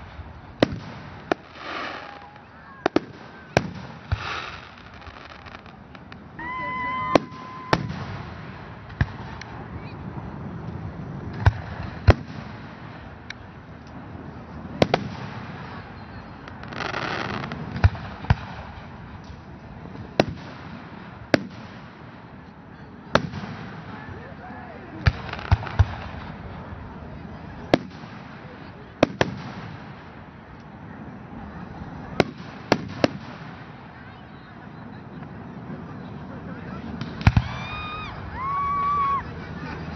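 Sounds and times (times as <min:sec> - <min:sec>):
firework shells bursting: 0:00.6 - 0:06.3.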